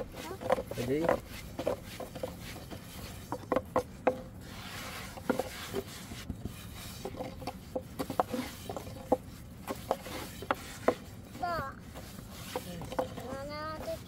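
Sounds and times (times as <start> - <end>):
rolling pin rubbing on board: 0.0 - 14.0
rolling pin knocking on board: 3.3 - 4.2.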